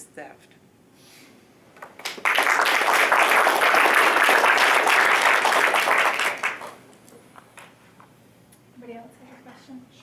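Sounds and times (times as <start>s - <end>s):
audience applauding: 1.9s - 6.8s.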